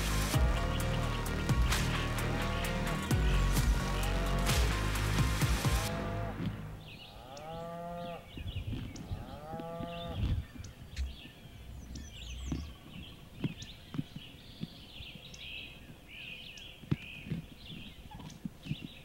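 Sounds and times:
songbirds chirping: 0.0s - 19.0s
turkeys calling: 0.0s - 19.0s.

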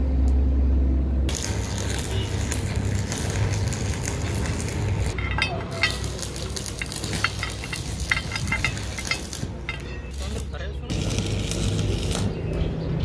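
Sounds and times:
small metal clicks: 1.3s - 10.4s.

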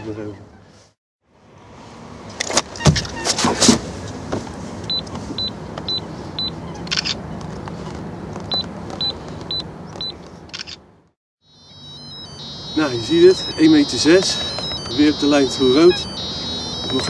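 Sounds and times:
camera timer beeping: 11.8s - 17.0s.

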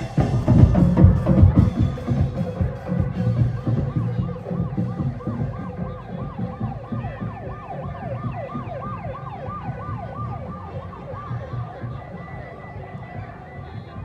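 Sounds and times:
low music beat: 0.0s - 11.9s
electronic siren yelping: 3.5s - 13.6s.

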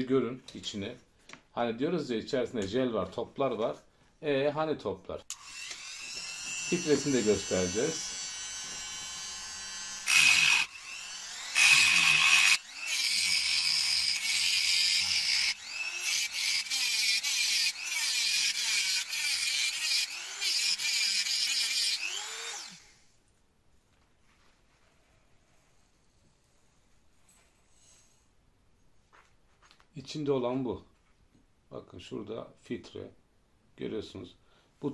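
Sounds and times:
cut-off disc grinding metal: 5.3s - 22.8s
rotary tool whining: 5.3s - 23.1s.

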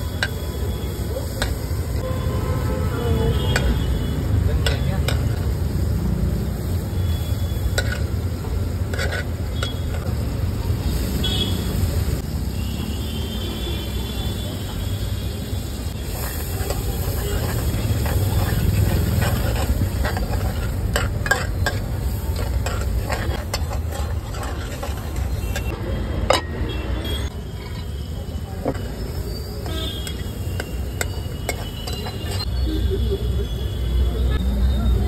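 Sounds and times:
vegetables sizzling in a pan: 0.0s - 25.8s, 27.3s - 33.8s
ladle stirring and scraping pan: 3.4s - 5.8s, 6.5s - 10.4s, 15.9s - 32.6s.

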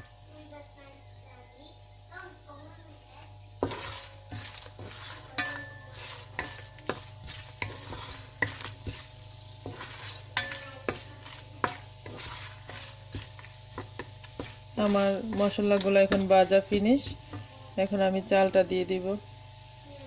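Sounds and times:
spices sizzling in hot oil: 0.0s - 20.0s
wooden spoon scraping a pot: 3.6s - 19.0s.

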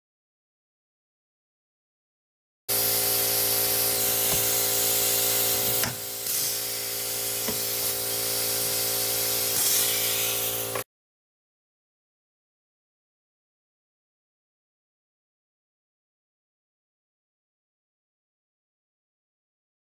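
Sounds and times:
pneumatic tool air hiss: 2.7s - 10.8s.

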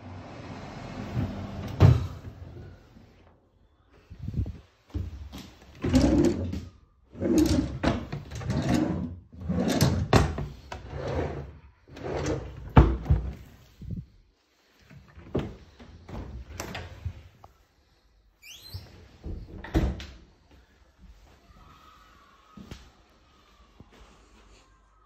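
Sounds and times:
drawers sliding open and shut: 0.0s - 3.2s, 4.4s - 14.0s, 14.8s - 17.4s.

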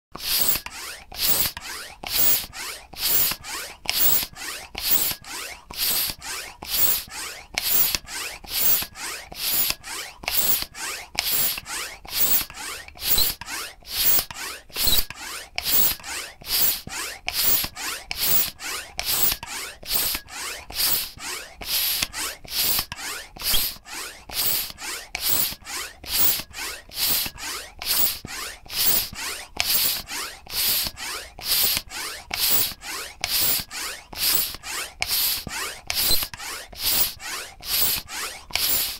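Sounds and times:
bicycle pump hissing strokes: 0.2s - 38.9s.

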